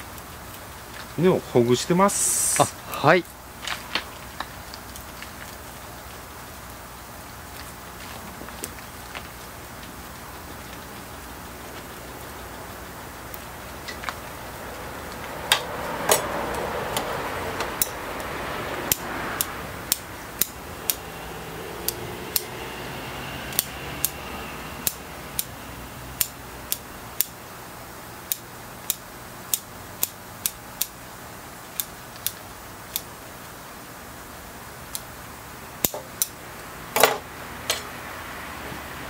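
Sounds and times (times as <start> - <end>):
soil crumbling rustle: 3.6 - 6.0
metal pick ticking: 15.2 - 18.0, 18.9 - 22.6, 24.8 - 25.6, 26.2 - 27.4.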